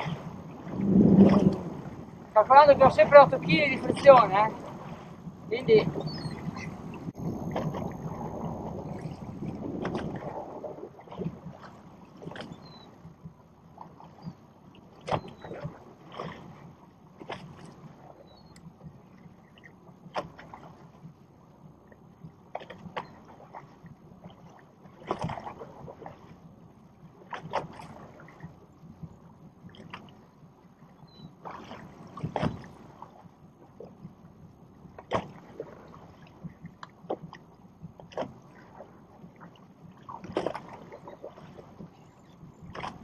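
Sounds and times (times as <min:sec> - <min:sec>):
small waves slapping boat hull: 0:00.0 - 0:43.0.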